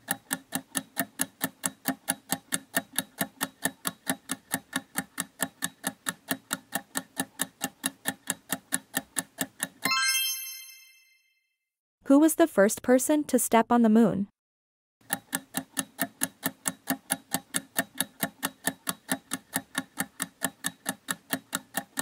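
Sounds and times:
rapid timer ticking: 0:00.0 - 0:09.9, 0:15.0 - 0:22.0
bright bell chime: 0:09.9 - 0:11.3.

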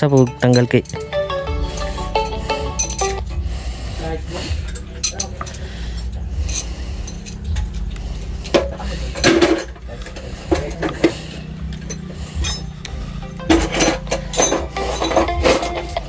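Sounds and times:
metal tools clinking: 0:00.0 - 0:03.3, 0:04.4 - 0:12.9, 0:13.5 - 0:16.0
low engine hum: 0:00.0 - 0:16.0.

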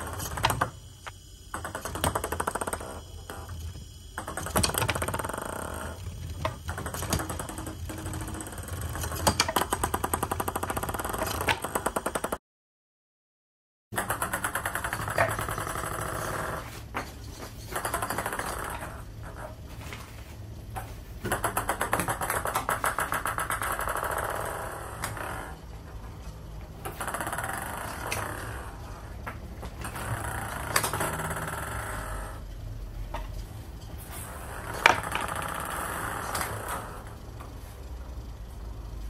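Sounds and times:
servo chattering: 0:00.0 - 0:12.0.

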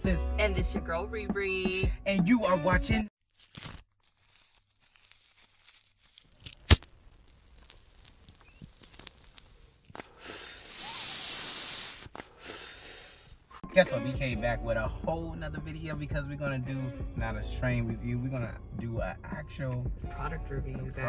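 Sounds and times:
faint crackling: 0:03.4 - 0:10.9.

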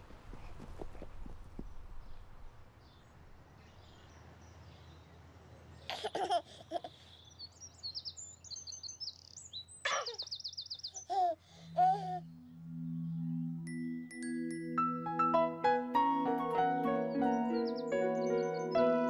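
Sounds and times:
baby giggling: 0:05.9 - 0:07.0, 0:11.0 - 0:12.2
birds chirping: 0:06.8 - 0:15.0, 0:16.0 - 0:19.0.

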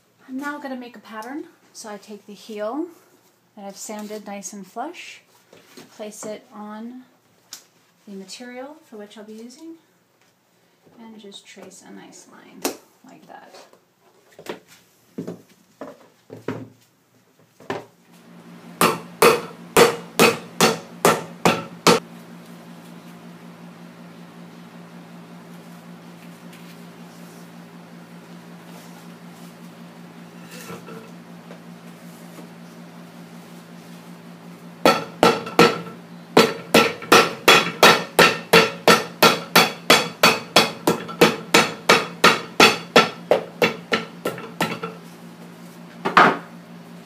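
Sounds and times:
hammer striking shoe heel: 0:18.8 - 0:22.0, 0:34.9 - 0:44.8
hammer striking shoe sole: 0:18.8 - 0:22.0.

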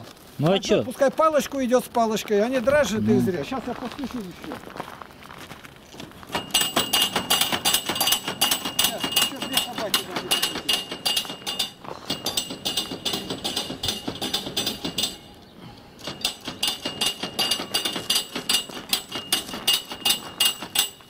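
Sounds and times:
footsteps crunching on snow: 0:00.0 - 0:06.3.

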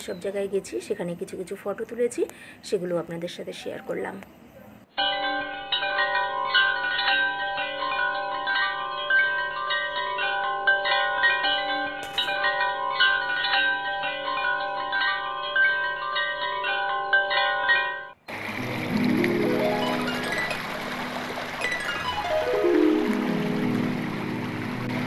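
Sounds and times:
wind chimes ringing: 0:05.0 - 0:18.2, 0:18.8 - 0:25.0.

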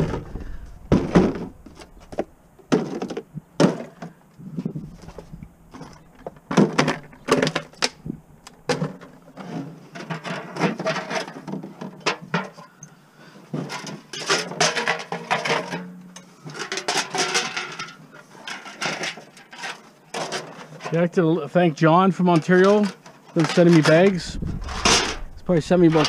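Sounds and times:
plastic jugs rustling and clattering: 0:00.0 - 0:12.7, 0:13.3 - 0:26.0.

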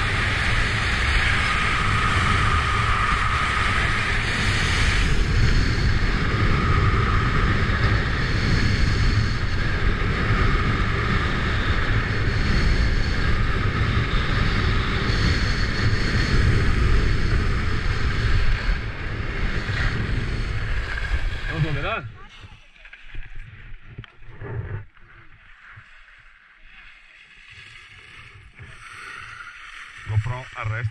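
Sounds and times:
wind buffeting microphone: 0:00.0 - 0:24.9
skis sliding on snow: 0:19.6 - 0:30.9.

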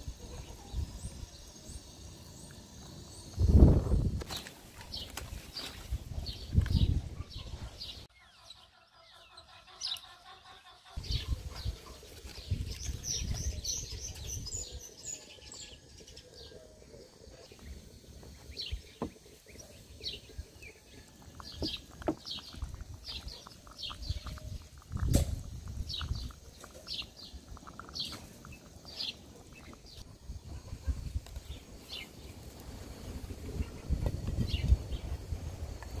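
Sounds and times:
small birds chirping: 0:00.0 - 0:36.0.

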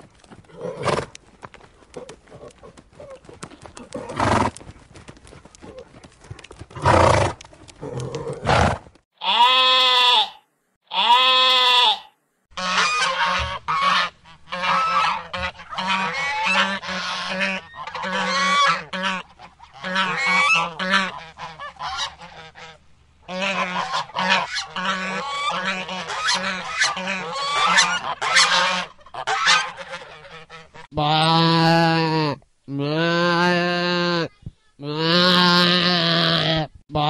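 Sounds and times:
geese honking: 0:09.2 - 0:32.2.

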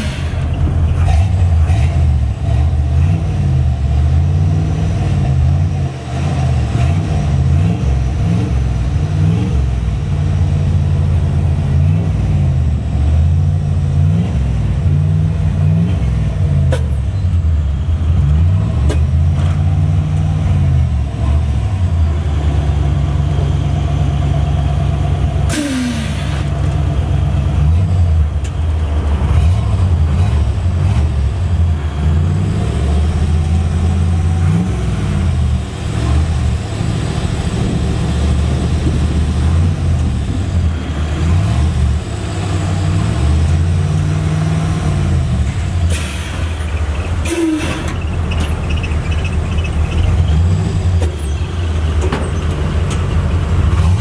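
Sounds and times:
truck engine revving: 0:00.0 - 0:54.0
air suspension hiss: 0:25.5 - 0:26.5, 0:45.9 - 0:48.0.

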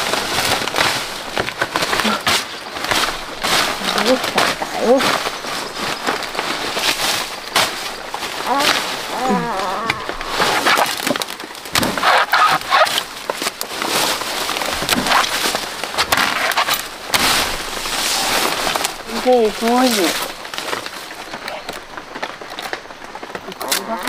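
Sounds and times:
wood cracking and splintering: 0:00.0 - 0:24.0
machete chopping dry wood: 0:10.5 - 0:12.9, 0:14.8 - 0:17.4.

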